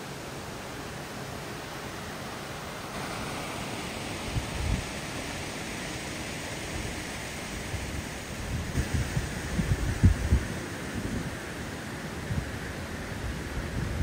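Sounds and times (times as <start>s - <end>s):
water rushing through lock gate: 0.0s - 14.0s
wind gust on microphone: 4.1s - 5.5s, 6.3s - 11.6s, 12.2s - 14.0s.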